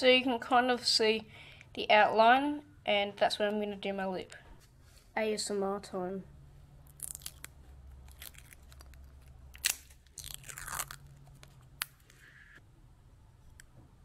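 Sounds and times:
plastic film crinkling: 0:06.9 - 0:12.2.

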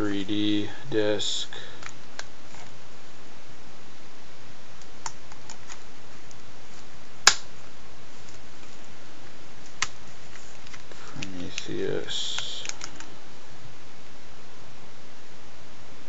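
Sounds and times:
sharp plastic snap: 0:07.2 - 0:07.5.

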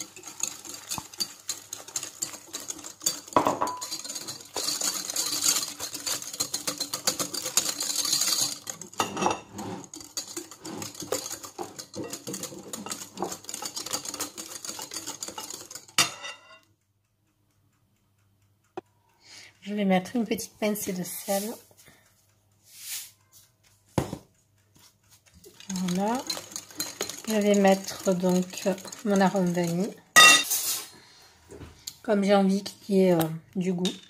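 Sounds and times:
whisk beating in glass bowl: 0:00.0 - 0:16.3, 0:24.8 - 0:31.0.

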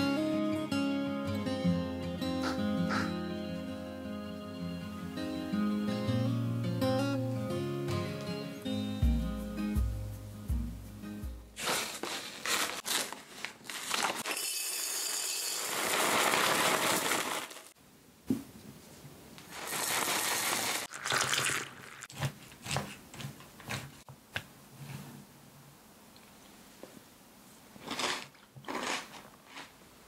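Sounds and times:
cereal pouring into glass jar: 0:13.7 - 0:17.7, 0:19.5 - 0:22.0.

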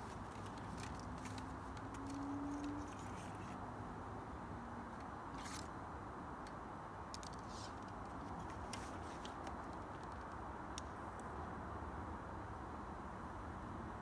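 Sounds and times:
archery gear clicks and rustles: 0:00.0 - 0:03.6
faint outdoor hum: 0:00.0 - 0:14.0.

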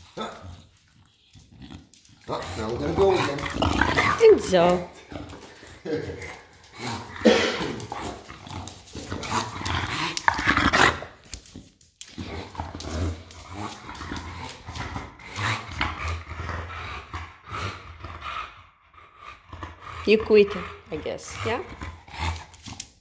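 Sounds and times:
dog grunting and snuffling: 0:00.0 - 0:23.0
claws clicking on tile: 0:07.8 - 0:16.2, 0:22.1 - 0:23.0.

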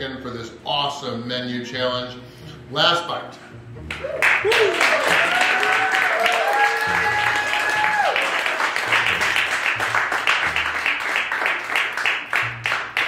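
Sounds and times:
crowd applauding: 0:03.9 - 0:13.0.

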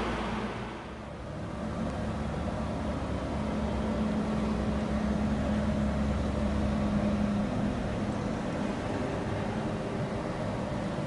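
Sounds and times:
low rumble: 0:00.0 - 0:01.7
low mechanical hum: 0:00.0 - 0:11.0.

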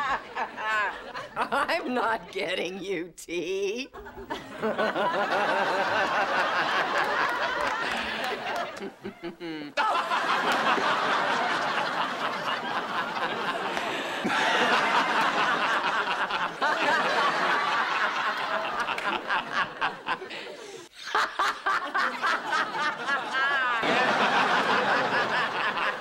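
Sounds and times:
woman and man laughing: 0:04.0 - 0:11.0.

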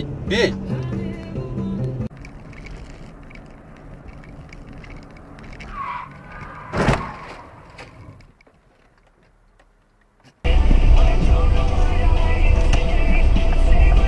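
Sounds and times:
car road noise: 0:00.0 - 0:14.0
tyre squeal: 0:05.4 - 0:08.2
vehicle collision crash: 0:05.5 - 0:08.2.

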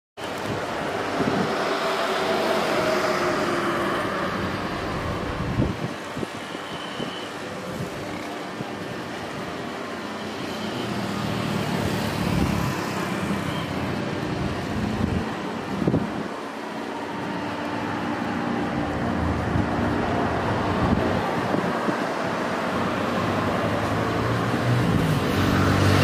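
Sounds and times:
distant jet engines roaring: 0:00.2 - 0:26.0
wind bumps on microphone: 0:00.4 - 0:01.8, 0:04.9 - 0:06.4, 0:19.3 - 0:22.5.

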